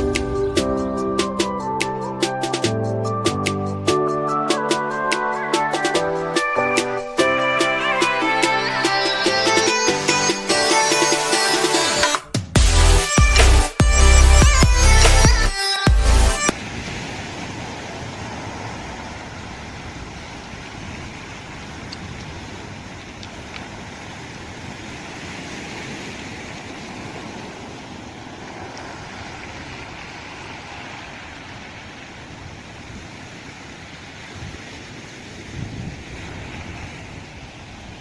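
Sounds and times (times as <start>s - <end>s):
sea waves washing onto pebbles: 16.5s - 38.0s.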